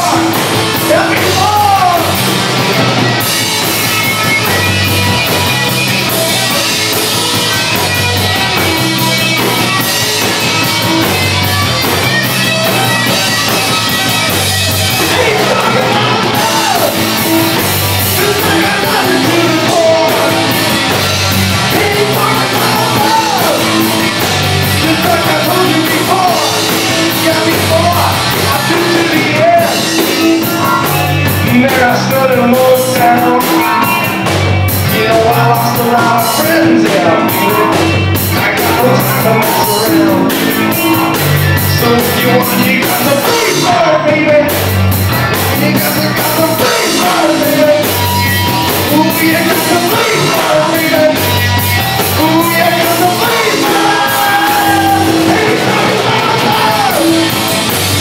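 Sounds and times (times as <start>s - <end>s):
bass guitar: 0.0s - 58.0s
drums: 0.0s - 58.0s
electric guitar solo: 52.8s - 58.0s.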